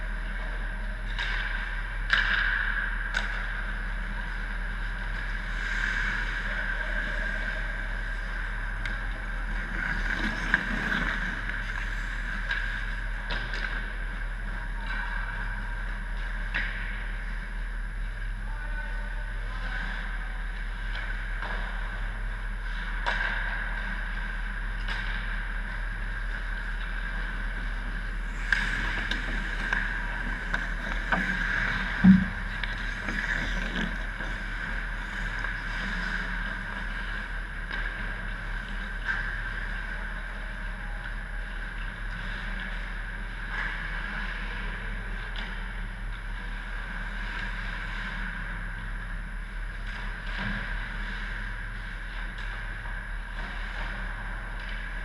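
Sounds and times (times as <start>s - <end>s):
arena hum: 0.0s - 55.0s
sticks pucks and skates clicking: 0.2s - 5.4s, 8.7s - 17.4s, 22.9s - 42.9s.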